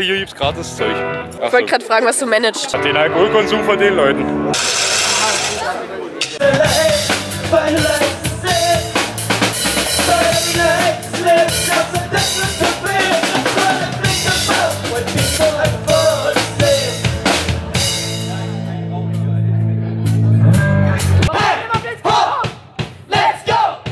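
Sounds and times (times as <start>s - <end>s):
rock band playing: 2.8s - 21.3s
drum kit beating: 4.6s - 18.6s, 21.0s - 23.9s.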